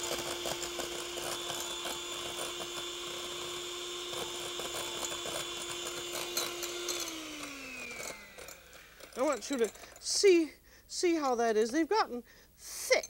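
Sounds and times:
electric hand mixer running: 0.0 - 10.1.

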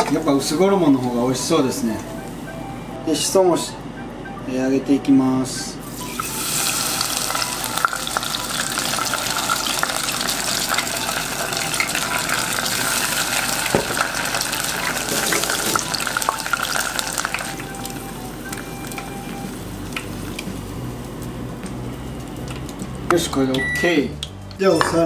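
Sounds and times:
battered leaves deep-frying in oil: 5.9 - 24.8.

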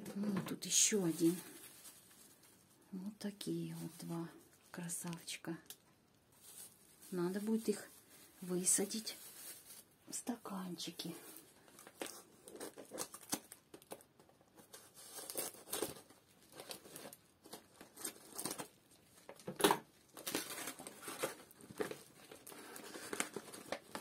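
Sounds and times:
paper crinkling and tearing: 0.9 - 2.7, 11.2 - 24.0.

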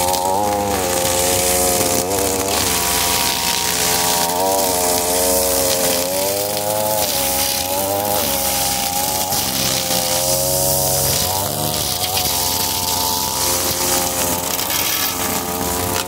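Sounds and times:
string trimmer engine running: 0.0 - 16.0
trimmer line cutting grass: 0.0 - 16.0.

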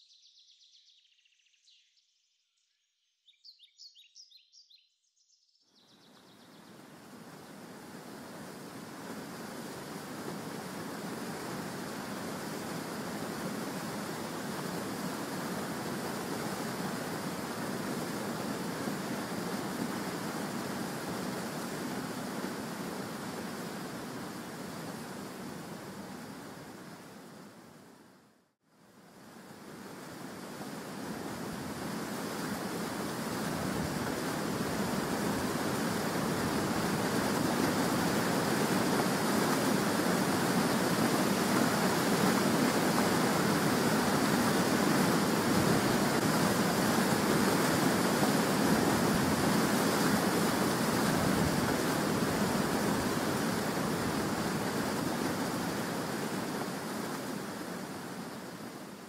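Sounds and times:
waterfall roaring: 7.0 - 27.8, 29.4 - 59.0.

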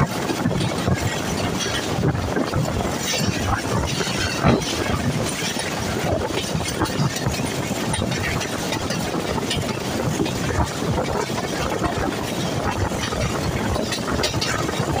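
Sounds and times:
train wheels rumbling on rails: 0.0 - 15.0
short clanks and rattles: 0.6 - 11.4.

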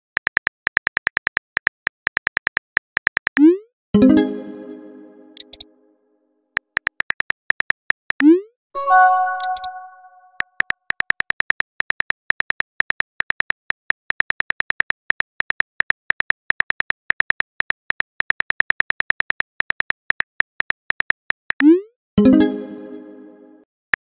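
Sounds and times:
keyboard typing clicks: 5.3 - 5.7, 8.2 - 10.4.

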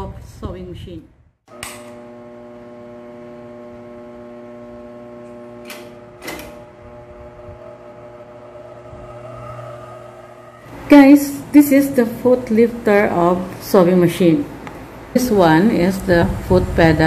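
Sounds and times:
motor switch clicks: 1.5 - 2.0.

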